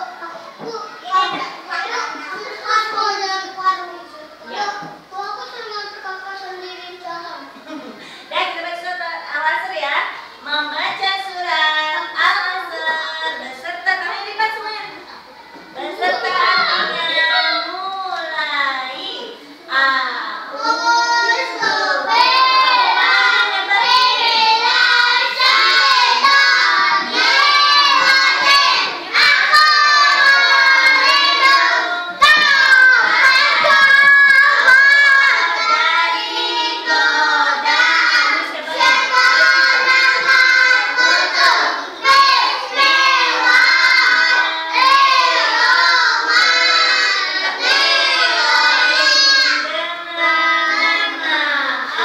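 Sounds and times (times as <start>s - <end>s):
young children singing: 15.5s - 18.3s, 18.9s - 52.0s.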